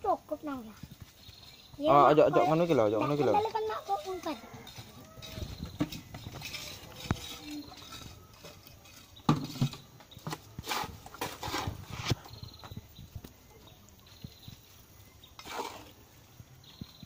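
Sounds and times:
stones clattering and scraping: 3.3s - 12.8s.

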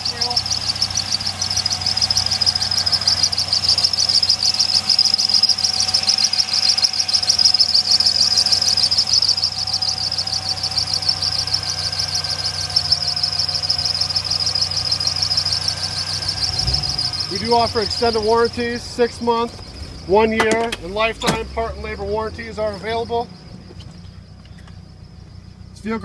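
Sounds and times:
high-pitched fluttering trill: 0.0s - 19.3s
belt squeal: 0.0s - 24.7s
car engine idling: 0.0s - 26.0s.

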